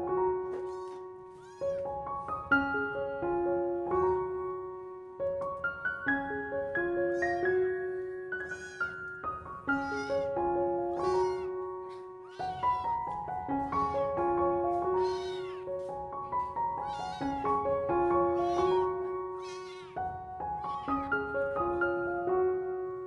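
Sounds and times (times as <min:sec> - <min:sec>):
background music: 0:00.0 - 0:23.0
kitten meowing: 0:00.6 - 0:01.8, 0:07.2 - 0:07.6, 0:08.4 - 0:09.0, 0:09.7 - 0:10.3, 0:10.9 - 0:14.1, 0:14.9 - 0:15.8, 0:16.8 - 0:21.2.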